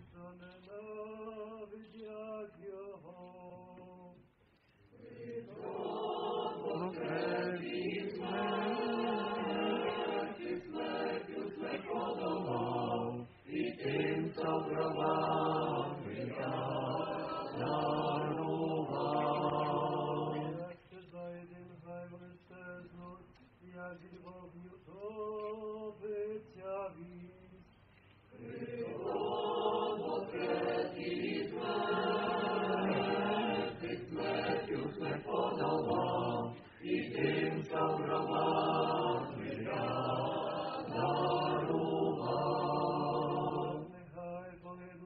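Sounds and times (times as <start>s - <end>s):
choir singing response: 5.0s - 20.8s, 28.3s - 44.3s.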